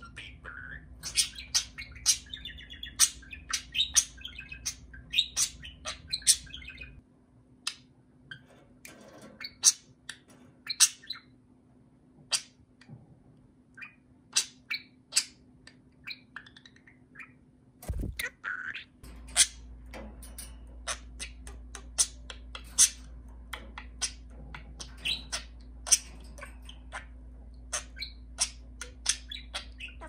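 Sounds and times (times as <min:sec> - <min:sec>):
budgerigar chirping and warbling: 0:00.0 - 0:07.0, 0:09.4 - 0:11.3, 0:13.8 - 0:15.4, 0:16.0 - 0:19.6, 0:20.8 - 0:23.1, 0:23.7 - 0:30.0.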